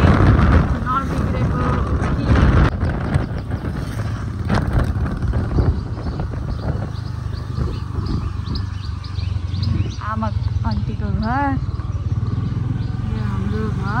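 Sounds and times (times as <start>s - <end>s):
birds chirping: 0.0s - 14.0s
scooter engine running: 0.0s - 14.0s.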